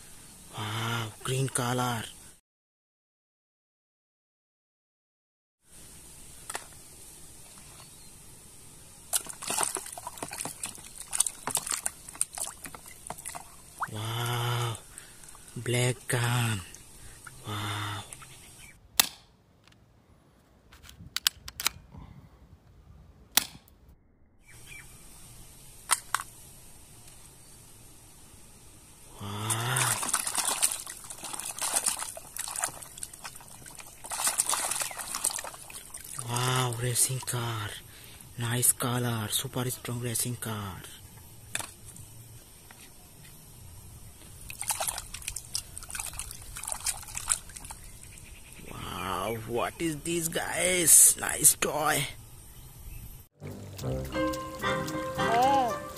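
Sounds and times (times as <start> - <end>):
water sloshing in plastic tub: 9.1 - 14.0, 29.5 - 36.3, 44.5 - 47.9
water trickling and dripping: 9.1 - 14.3, 29.2 - 37.4, 44.3 - 48.3, 53.4 - 55.9
hand splashing water in basin: 29.4 - 36.3.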